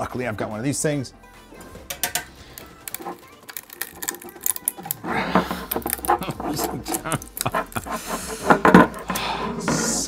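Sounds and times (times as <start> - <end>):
spatula scraping a build plate: 2.0 - 10.0.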